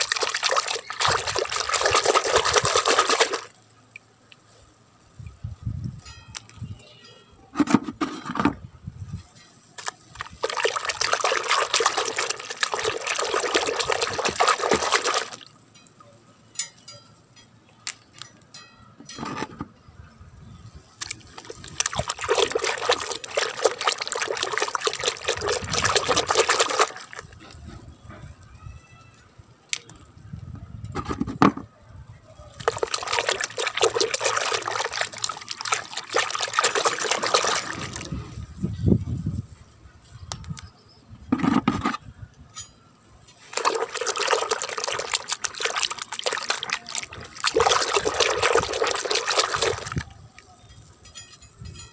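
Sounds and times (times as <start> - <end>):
water splashing in plastic bucket: 0.0 - 3.5, 9.8 - 15.5, 21.0 - 27.5, 32.6 - 38.2, 43.4 - 50.0
water drips: 0.0 - 4.4, 9.8 - 18.3, 21.0 - 27.6, 32.6 - 38.2, 43.4 - 50.8.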